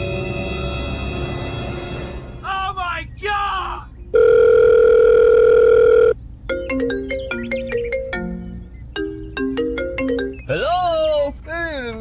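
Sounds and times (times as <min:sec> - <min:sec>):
steady telephone tone: 0:04.1 - 0:06.2.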